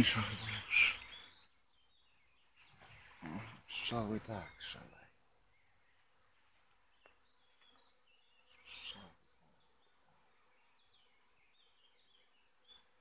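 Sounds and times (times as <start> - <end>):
high bird chirps: 0.0 - 5.0
honeybees buzzing: 0.0 - 13.0.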